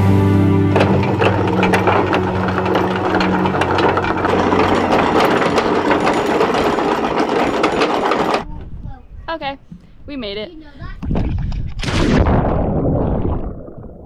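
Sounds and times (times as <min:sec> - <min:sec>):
anchor chain clattering through windlass: 0:00.7 - 0:08.5.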